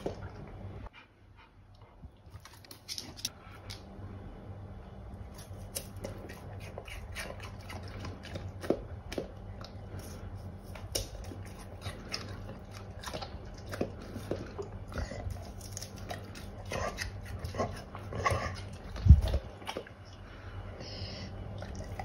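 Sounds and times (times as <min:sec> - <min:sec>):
dog chewing crunchy pear: 0:05.2 - 0:20.6.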